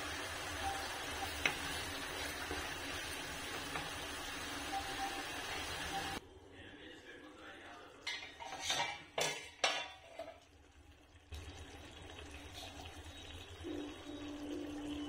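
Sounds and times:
metal lid clinking and scraping: 0:08.1 - 0:10.4.

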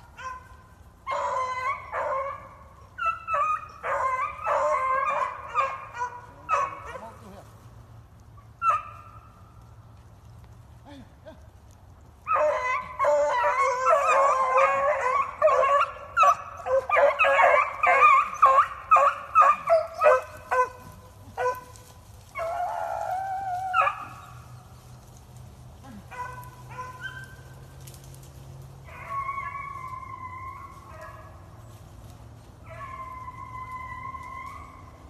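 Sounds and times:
dog yelps: 0:00.0 - 0:07.2, 0:08.5 - 0:09.3, 0:12.3 - 0:24.4, 0:26.1 - 0:27.5, 0:28.8 - 0:31.4, 0:32.6 - 0:35.0
dogs baying and barking: 0:00.0 - 0:07.3, 0:08.4 - 0:09.4, 0:12.2 - 0:35.0
dog howling: 0:01.0 - 0:07.0, 0:12.3 - 0:21.6, 0:28.8 - 0:31.3, 0:32.6 - 0:35.0.

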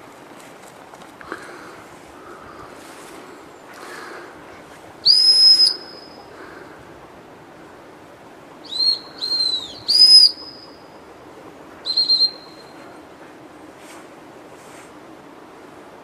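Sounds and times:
dog whistle blasts: 0:05.1 - 0:06.1.

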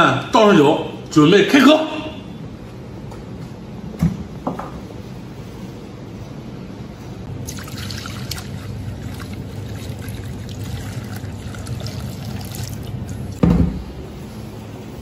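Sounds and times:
liquid pouring into ceramic bowl: 0:07.4 - 0:13.4.

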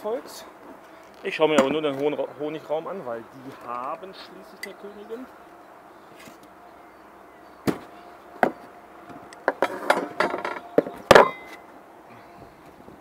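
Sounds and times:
clattering and rustling: 0:09.5 - 0:11.6.

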